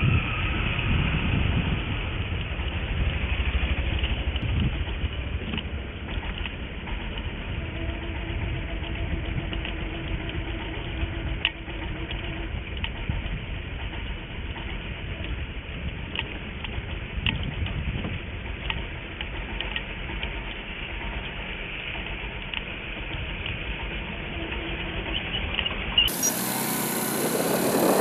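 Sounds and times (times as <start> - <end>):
motorbike engine and road rumble: 0.0 - 28.0.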